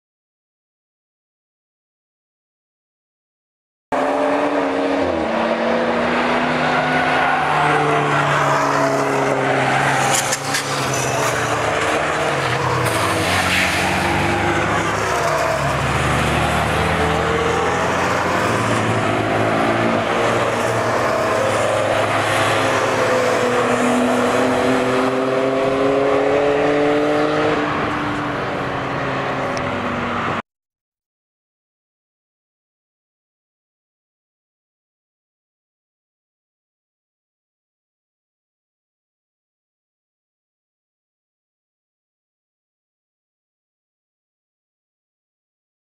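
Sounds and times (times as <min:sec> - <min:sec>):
race cars and motorcycles passing: 0:04.0 - 0:30.4.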